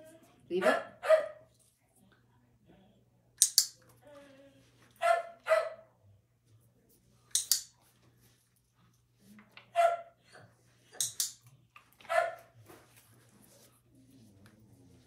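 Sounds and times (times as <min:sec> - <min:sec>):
dog barking: 0:00.6 - 0:01.5, 0:05.0 - 0:05.9, 0:09.7 - 0:10.2, 0:12.0 - 0:12.5
sharp clicks: 0:03.4 - 0:03.8, 0:07.3 - 0:07.7.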